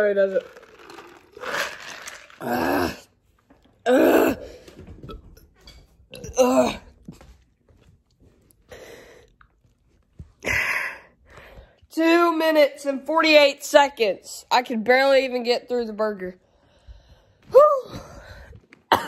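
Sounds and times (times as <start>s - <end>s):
person drinking soda: 0.4s - 4.4s.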